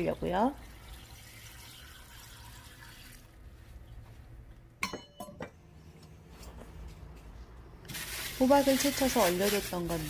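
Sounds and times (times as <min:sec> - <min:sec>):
water pouring into a pot: 0:00.0 - 0:03.4
metal pot lid clinking: 0:04.8 - 0:05.5.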